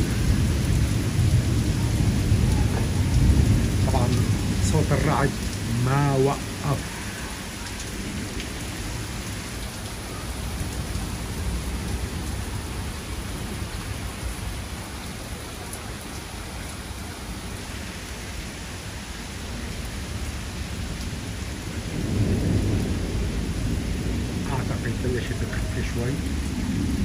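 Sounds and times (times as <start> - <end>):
thunder rumbling: 0.0 - 14.7, 21.7 - 27.0
heavy rain pouring: 0.0 - 27.0.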